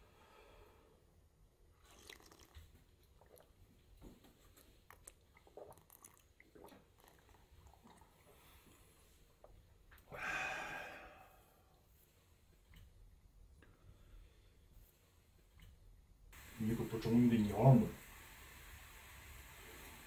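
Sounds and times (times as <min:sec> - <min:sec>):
breathy exhale: 0:00.0 - 0:01.0, 0:10.1 - 0:11.7
child sipping and swallowing: 0:01.8 - 0:10.1.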